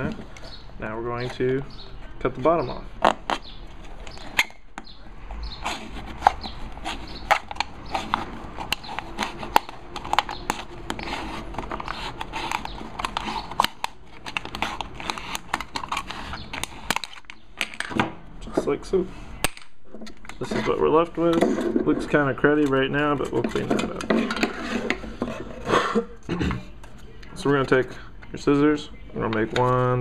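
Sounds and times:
knife cutting metal can: 5.5s - 17.3s.

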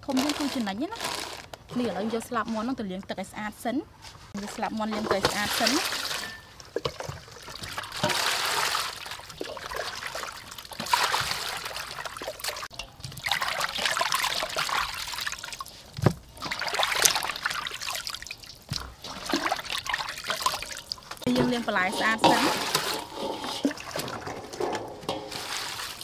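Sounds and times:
water splashing in basin: 4.4s - 26.0s.

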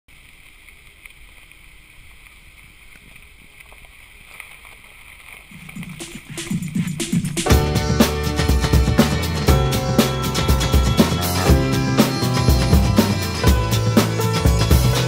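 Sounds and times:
outdoor background noise: 0.1s - 7.5s
music: 5.6s - 15.0s.

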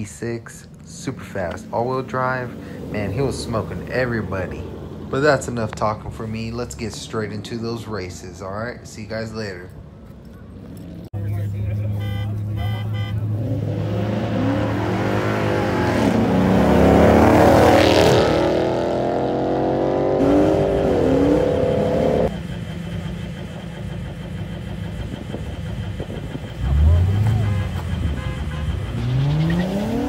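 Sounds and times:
cars accelerating and passing: 0.0s - 22.5s, 25.1s - 30.0s
engine revving up: 13.2s - 22.4s, 26.2s - 30.0s.

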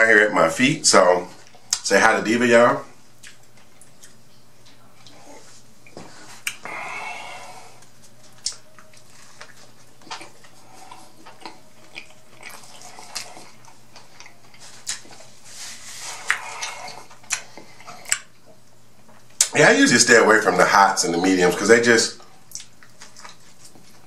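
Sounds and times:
wet chewing: 3.2s - 4.2s, 7.8s - 15.3s, 16.1s - 19.6s, 22.5s - 24.0s
lip smacks and clicks: 16.2s - 18.4s, 22.5s - 23.8s.

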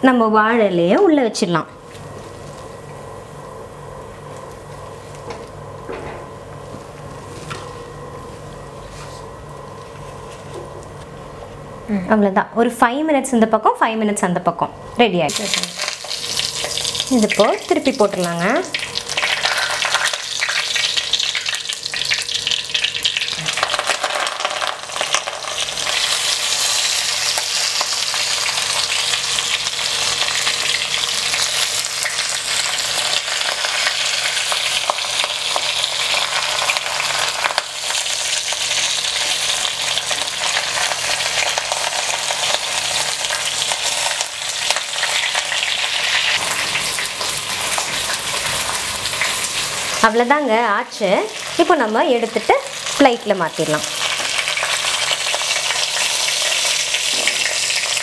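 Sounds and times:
fish frying in hot oil: 15.3s - 58.0s.

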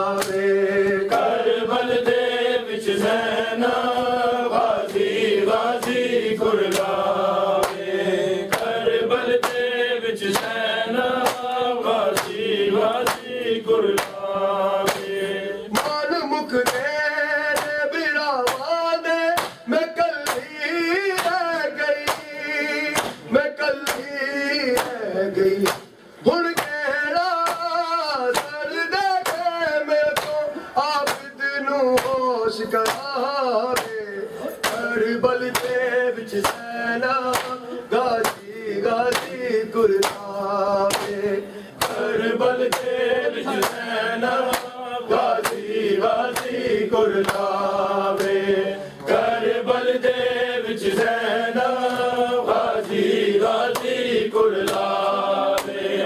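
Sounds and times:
men chanting a lament: 0.0s - 56.0s.

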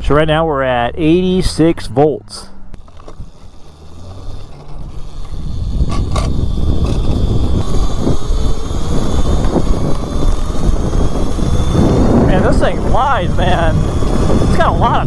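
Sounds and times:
faint high electric whine: 0.0s - 15.0s
wind rushing over microphone: 4.2s - 15.0s.

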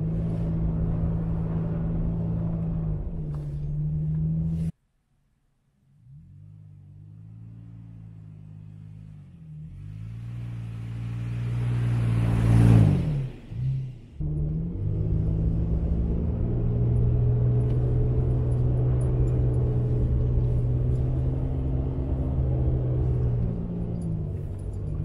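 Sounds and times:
pickup truck driving past: 6.2s - 25.0s
engine running inside cab: 14.0s - 25.0s.

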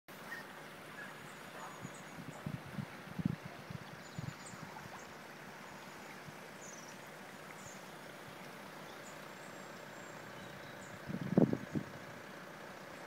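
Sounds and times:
floodwater rushing: 0.1s - 13.0s
faint bird chirps: 3.9s - 7.9s, 8.8s - 11.0s.

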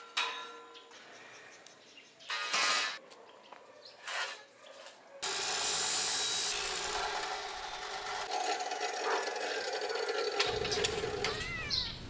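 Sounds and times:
chop saw grinding through metal: 5.2s - 11.3s
saw motor whining: 5.2s - 11.4s.

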